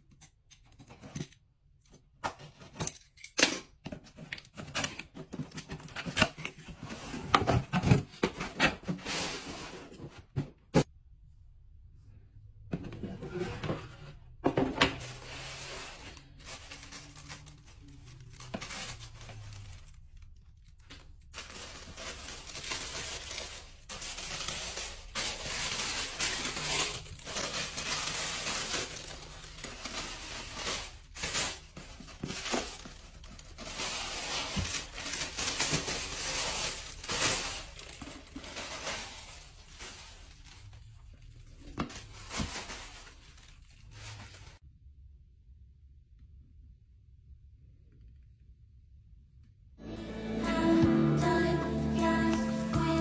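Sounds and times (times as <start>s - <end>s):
tissue paper rustling: 15.0s - 44.6s.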